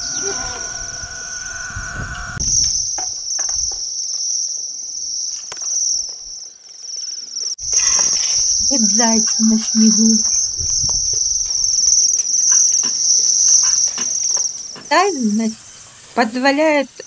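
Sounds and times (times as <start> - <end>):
birds trilling in chorus: 0.0 - 4.2, 7.7 - 16.9.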